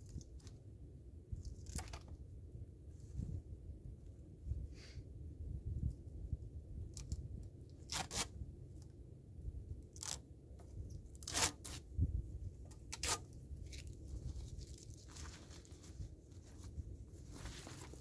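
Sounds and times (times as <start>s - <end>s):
fabric rasping and ripping: 7.9s - 8.3s, 11.2s - 11.8s, 12.9s - 13.2s
steady low rumble: 11.8s - 18.0s.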